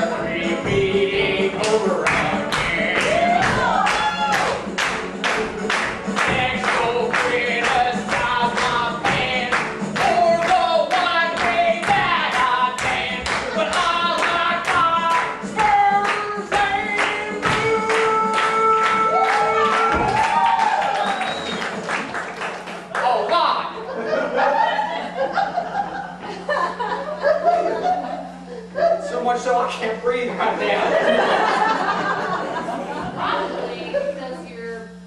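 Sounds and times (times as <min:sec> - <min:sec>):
person singing: 0:00.0 - 0:04.5, 0:06.2 - 0:20.2
rhythmic hand clapping: 0:01.6 - 0:23.4.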